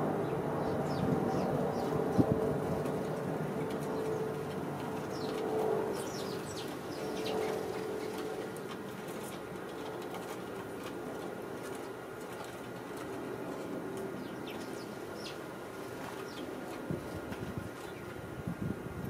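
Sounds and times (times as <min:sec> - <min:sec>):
low steady hum: 0:00.0 - 0:19.0
sparrows chirping: 0:00.1 - 0:09.4, 0:13.0 - 0:17.1, 0:17.8 - 0:18.2.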